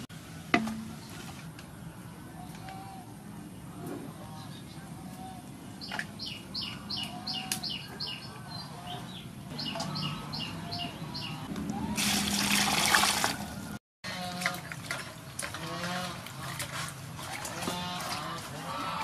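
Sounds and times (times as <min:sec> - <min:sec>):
bird chirping: 0:04.6 - 0:11.5
water splashing in a basin: 0:12.0 - 0:13.5, 0:14.3 - 0:18.5.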